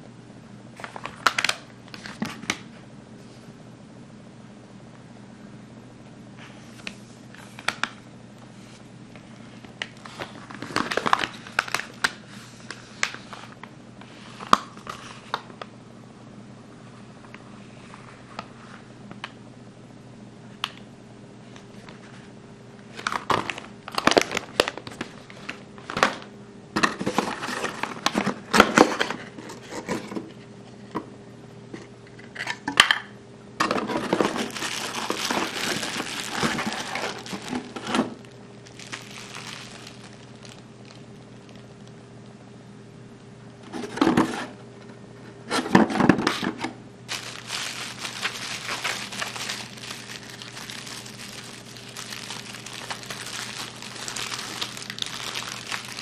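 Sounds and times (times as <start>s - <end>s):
bubble wrap crinkling: 9.8s - 13.3s, 23.0s - 26.0s, 33.9s - 42.0s, 47.1s - 56.0s
paper leaflet rustling: 34.0s - 41.7s, 47.1s - 56.0s.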